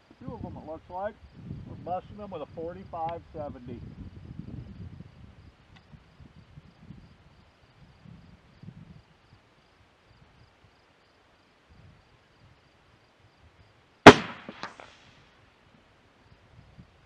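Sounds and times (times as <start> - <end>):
rifle shot: 14.0 - 15.0
faint echoing crack: 14.1 - 15.0.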